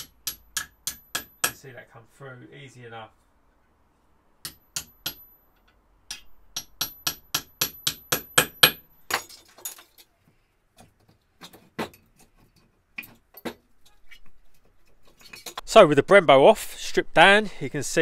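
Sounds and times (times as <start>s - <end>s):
hammer tapping metal punch: 0.0s - 1.6s, 4.4s - 8.8s.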